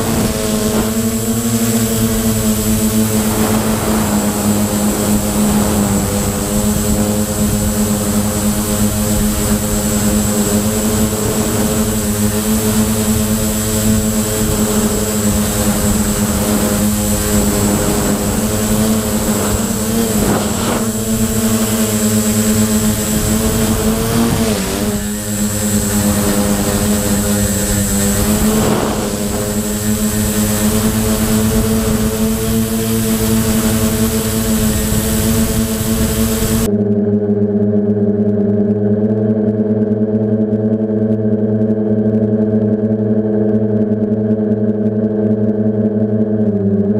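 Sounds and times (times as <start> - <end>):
drone motors spinning: 0.0 - 36.7.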